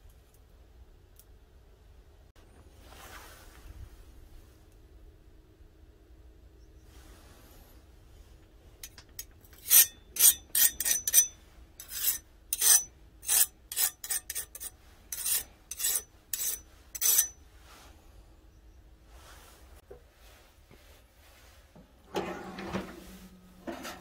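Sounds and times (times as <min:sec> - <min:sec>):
steel file scraping knife blade: 0:08.8 - 0:17.4.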